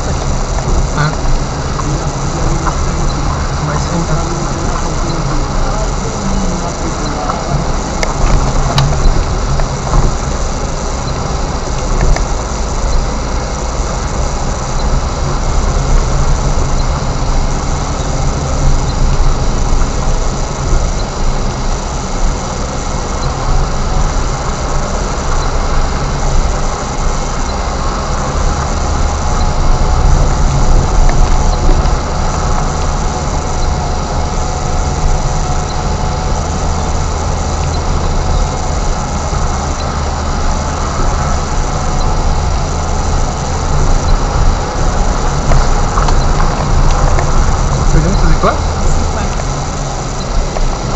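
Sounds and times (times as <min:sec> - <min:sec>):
car engine noise: 0:00.0 - 0:50.9
tyres rumbling on dirt road: 0:00.0 - 0:50.9.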